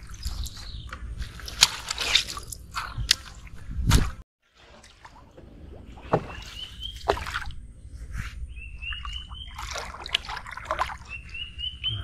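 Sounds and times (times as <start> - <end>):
paddle strokes swishing water: 0.0 - 11.7
paddle knocking canoe hull: 4.6 - 7.5.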